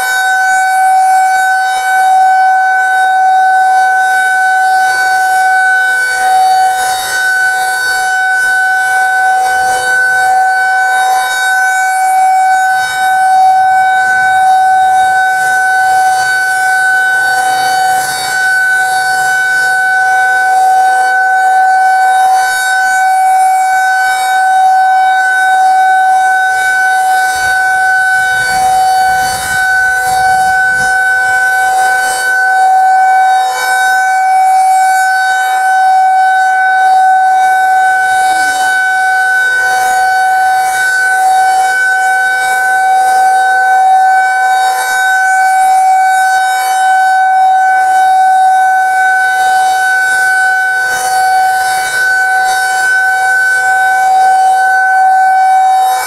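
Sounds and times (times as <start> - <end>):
warning siren steady tone: 0.0 - 56.0.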